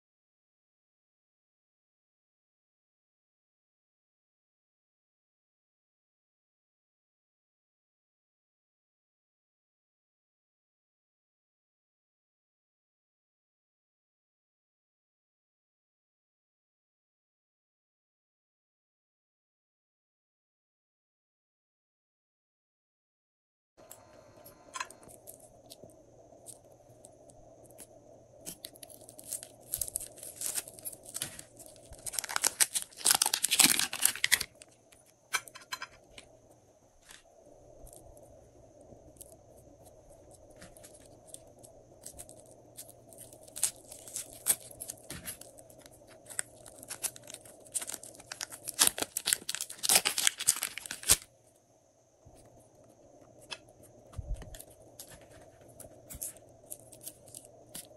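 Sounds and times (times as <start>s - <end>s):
slime squishing and crackling: 28.4s - 34.7s, 42.0s - 51.2s.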